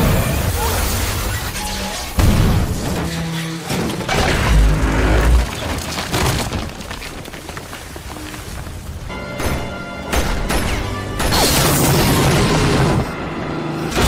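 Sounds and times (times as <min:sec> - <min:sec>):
deep rumble of rubble: 0:00.0 - 0:09.2.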